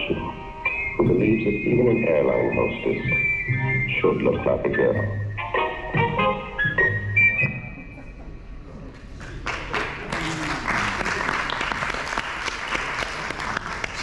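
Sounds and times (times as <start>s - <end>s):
commercial music: 0.0s - 7.6s
audience applauding: 8.9s - 14.0s.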